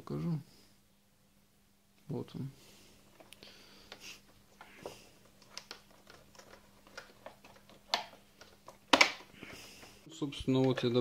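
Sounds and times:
plastic clicks and knocks: 5.4s - 9.3s, 10.6s - 11.0s.

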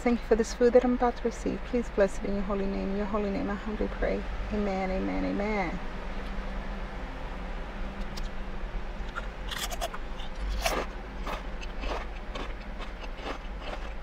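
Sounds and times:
chips being chewed: 9.1s - 14.0s.

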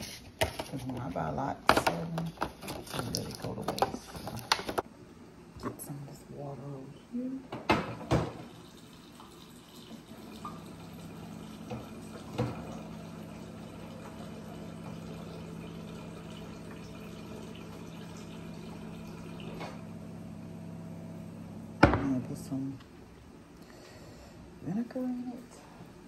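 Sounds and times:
water running into a bowl: 8.3s - 19.8s.

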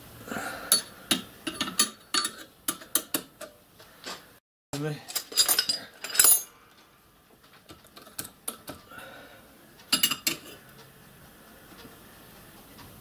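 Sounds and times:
metal spanner clinking against handle: 0.7s - 3.5s, 5.1s - 6.5s.

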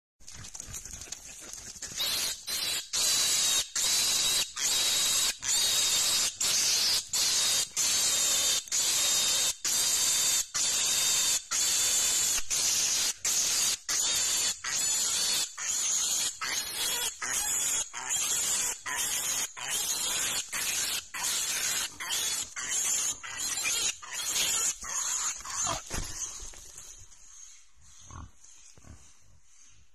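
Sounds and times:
piglet screaming: 2.0s - 12.4s, 13.0s - 26.0s.

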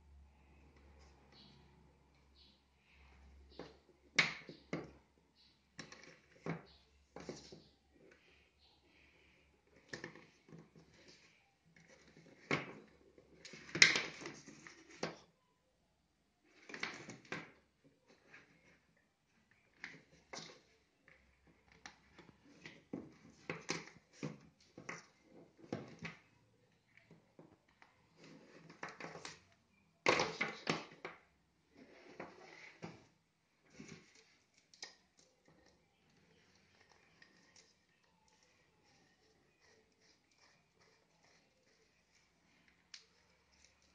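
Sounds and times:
plastic tubing rustling and clattering: 9.0s - 15.3s, 26.9s - 43.9s.

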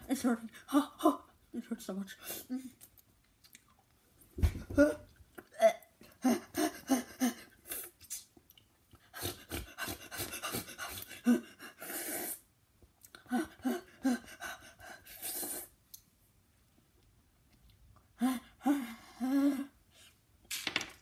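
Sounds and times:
boy panting and crying out: 4.4s - 8.0s, 9.0s - 12.4s, 13.2s - 15.7s, 18.1s - 19.8s.

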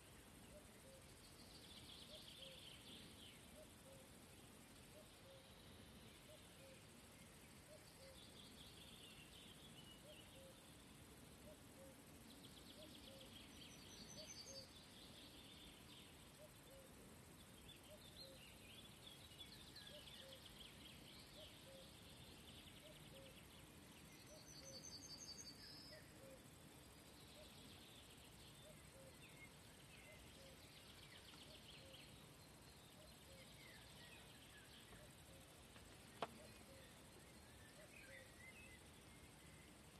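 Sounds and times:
distant birdsong: 0.0s - 39.9s
faint ticks: 34.7s - 36.9s.

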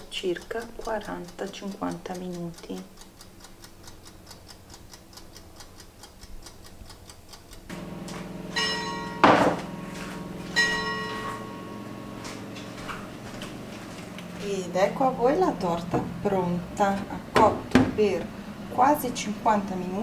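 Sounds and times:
fast even ticking: 0.0s - 8.8s
steady hum: 7.5s - 20.0s
ringing chimes: 7.8s - 13.2s
loud knock: 9.0s - 9.7s, 17.4s - 18.0s.

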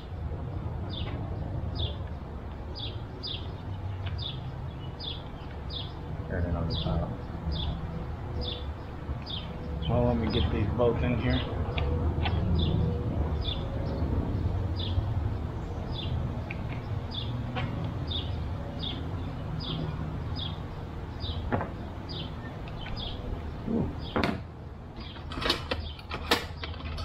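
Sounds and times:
bird chirping: 0.0s - 24.4s
sharp clicks and knocks: 24.1s - 27.0s.

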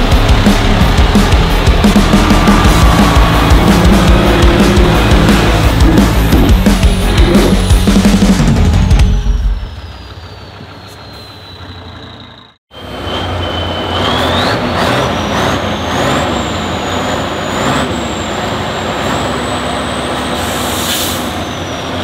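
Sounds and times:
high whine climbing in pitch: 0.0s - 10.0s
truck engine running: 0.0s - 22.0s.

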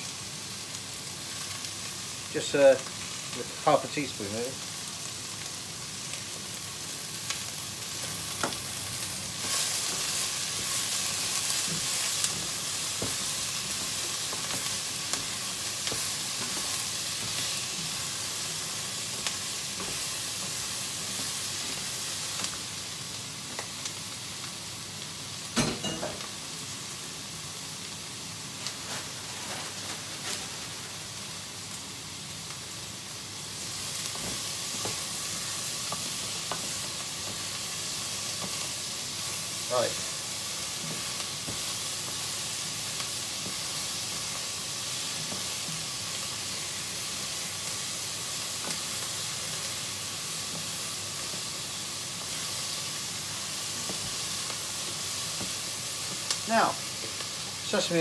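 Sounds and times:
vegetables sizzling in oil: 0.0s - 58.0s
loud knock on pan: 25.6s - 26.2s.

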